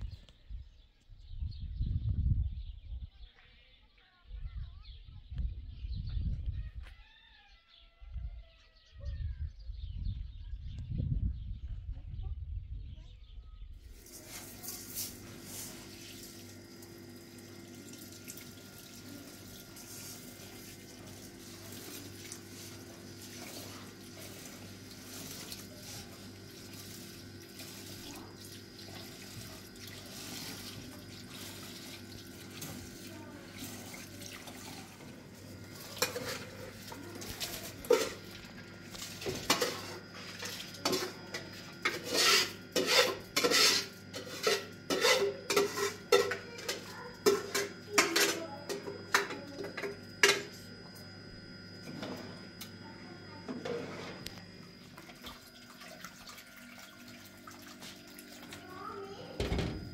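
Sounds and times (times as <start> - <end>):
running water hiss: 13.9 - 41.0.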